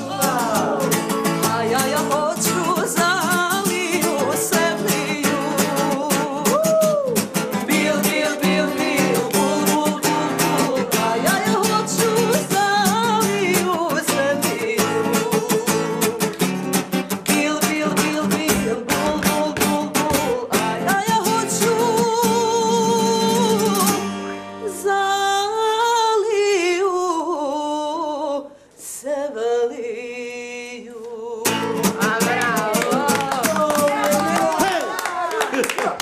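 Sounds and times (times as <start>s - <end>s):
strummed acoustic guitar: 0.0s - 25.0s, 31.4s - 34.8s
woman singing: 0.0s - 35.4s.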